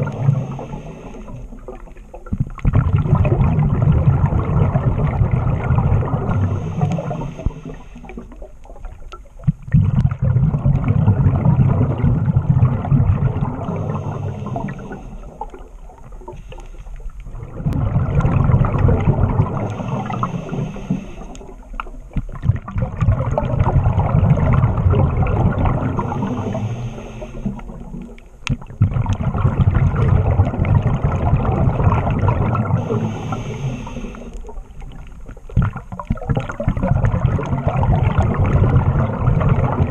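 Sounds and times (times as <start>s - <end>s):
regulator inhale hiss: 0.0s - 1.6s, 6.3s - 8.4s, 13.6s - 15.5s, 16.3s - 17.2s, 19.6s - 21.6s, 26.0s - 27.8s, 32.8s - 34.5s
exhaled bubbles rushing: 0.0s - 39.9s.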